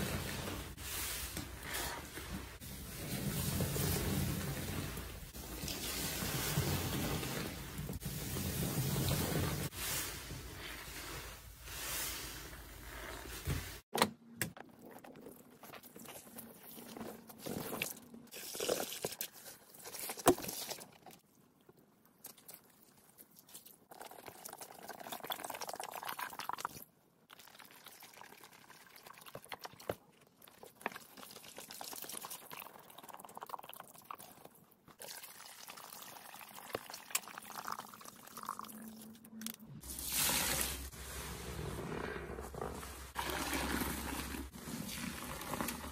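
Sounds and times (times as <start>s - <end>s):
squelching soaked sponges: 0.0s - 13.9s, 14.7s - 24.4s, 38.7s - 45.9s
liquid pouring and trickling: 14.8s - 21.2s, 22.3s - 40.9s.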